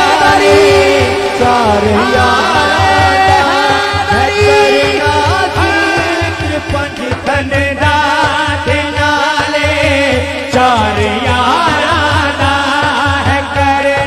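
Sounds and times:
steady low beat: 0.0s - 8.2s
man singing into a microphone: 0.0s - 14.0s.

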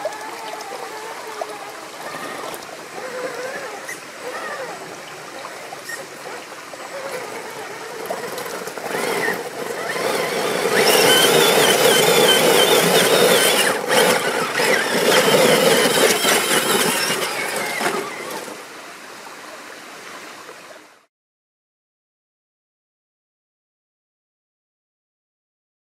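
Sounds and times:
electric motor and gears whining: 0.0s - 18.7s.

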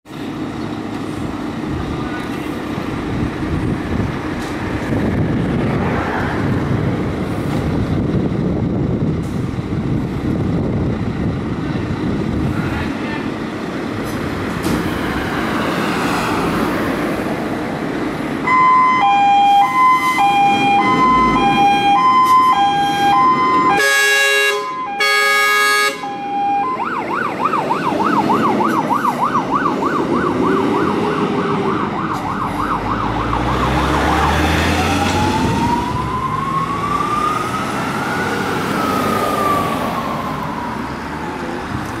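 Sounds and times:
two-tone siren: 18.4s - 41.5s
siren yelp: 18.4s - 41.6s
siren wail: 18.4s - 41.9s
air horn blasts: 21.4s - 26.4s.

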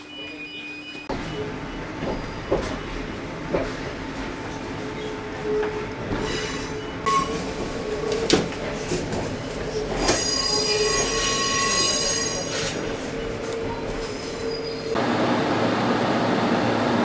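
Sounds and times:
train wheel squeal: 0.0s - 3.0s, 5.0s - 8.2s, 9.6s - 15.0s
train running noise: 1.0s - 17.0s.

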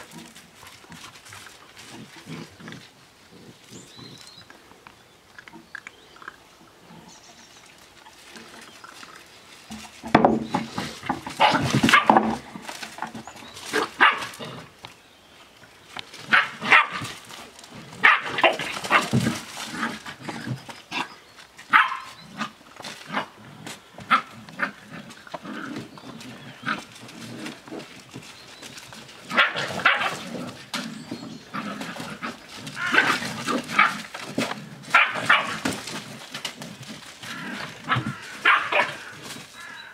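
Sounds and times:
puppies barking: 11.3s - 12.4s, 13.7s - 14.4s, 16.3s - 17.1s, 18.0s - 19.3s, 21.7s - 22.5s, 29.3s - 30.5s, 34.9s - 35.7s, 37.3s - 39.4s.

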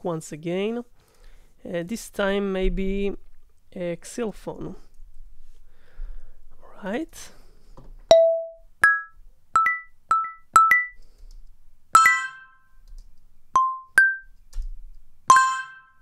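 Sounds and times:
synth xylophone notes: 8.1s - 11.0s, 12.0s - 12.7s, 13.6s - 14.3s, 15.3s - 16.0s.

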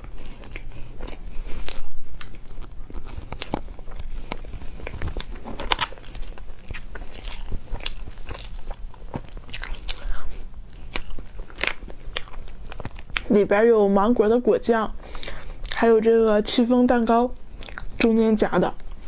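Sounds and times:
mouth clicks and smacks chewing: 0.0s - 5.4s, 6.0s - 13.3s, 17.0s - 18.1s.

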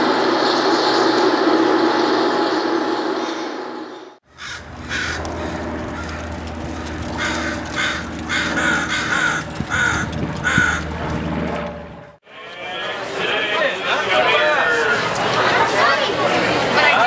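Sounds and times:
low city hum: 0.0s - 17.0s
crow cawing: 4.3s - 10.9s.

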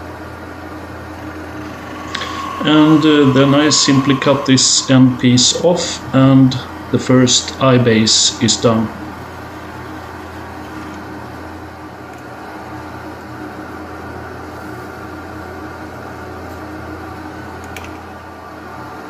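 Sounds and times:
lathe motor hum: 0.0s - 7.0s.

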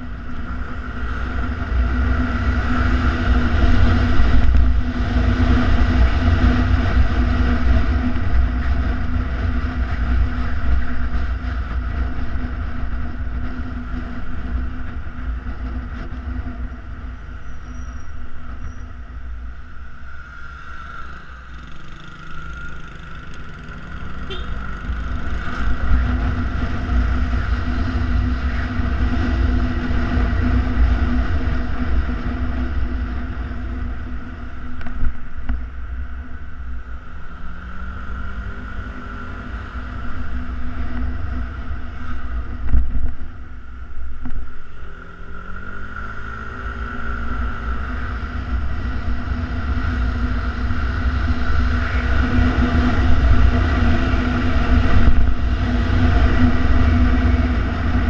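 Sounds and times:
wind rush on microphone: 0.0s - 19.6s, 25.2s - 37.1s, 38.0s - 44.7s, 47.7s - 58.0s
scooter engine running: 20.7s - 28.2s.

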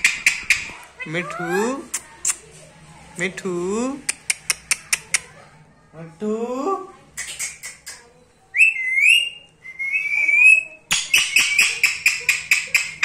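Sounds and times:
parakeet clicks: 4.1s - 5.3s, 10.9s - 13.0s
parakeet wavering whistles: 8.5s - 12.3s
parakeet clicking chirps: 10.9s - 13.0s.

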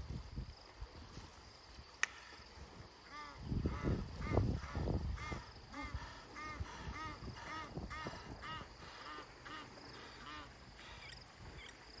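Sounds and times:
bird calling: 3.1s - 11.8s.

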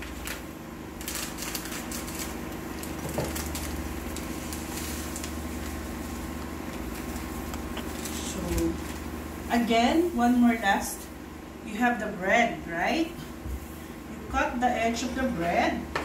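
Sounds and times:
plastic packet crinkling: 0.0s - 9.6s.

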